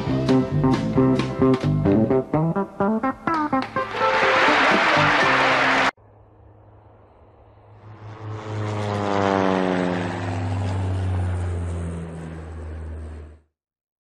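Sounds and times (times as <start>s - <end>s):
propeller airplane flying past: 6.0s - 13.5s.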